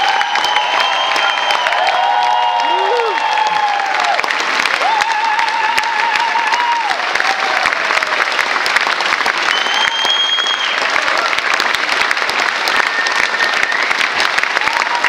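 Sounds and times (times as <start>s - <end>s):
crowd clapping: 0.0s - 15.0s
high whistle-like tone: 9.5s - 10.8s.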